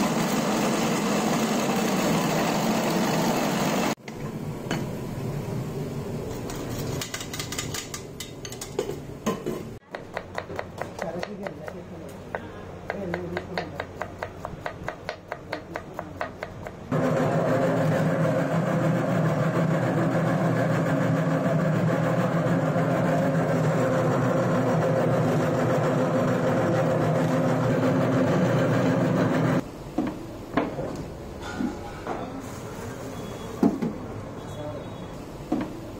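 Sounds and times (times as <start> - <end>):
electric vegetable slicer running: 0.0 - 3.9, 16.9 - 29.6
knife chopping on wooden board: 9.9 - 11.8.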